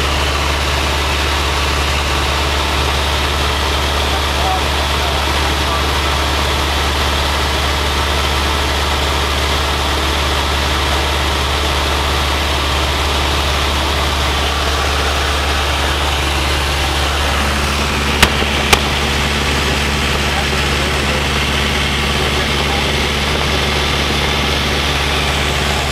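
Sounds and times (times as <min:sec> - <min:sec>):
light airplane engine droning: 0:11.2 - 0:25.9.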